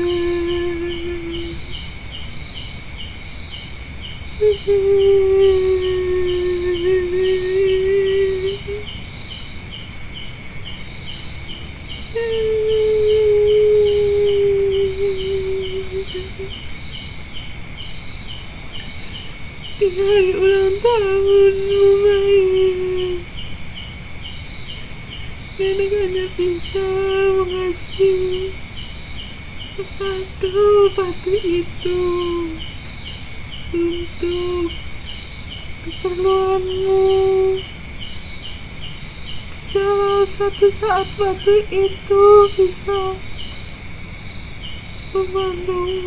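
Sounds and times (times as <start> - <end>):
person making long held tones: 0.0 - 1.6, 4.4 - 8.9, 12.1 - 16.6, 19.8 - 23.3, 25.6 - 28.6, 29.8 - 32.6, 33.7 - 34.8, 35.8 - 37.6, 45.2 - 46.0
crickets chirping: 0.0 - 46.0
high insect drone: 0.0 - 46.0.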